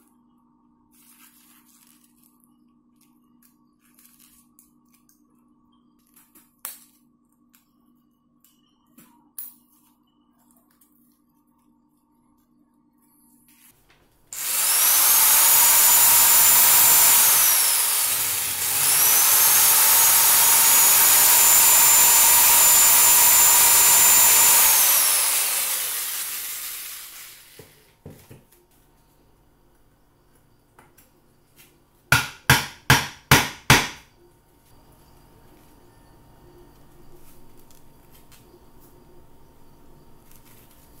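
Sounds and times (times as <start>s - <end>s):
rotary tool grinding whine: 14.3s - 27.8s.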